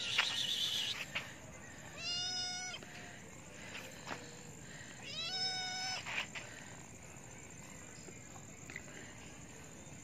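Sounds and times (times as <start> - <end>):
kitten meowing: 2.0 - 2.8, 5.0 - 6.0.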